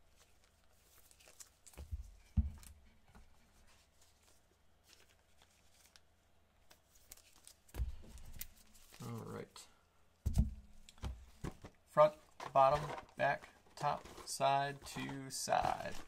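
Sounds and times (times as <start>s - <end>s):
trading cards rustling and clicking: 0.0s - 1.9s, 3.8s - 9.4s, 10.9s - 16.0s.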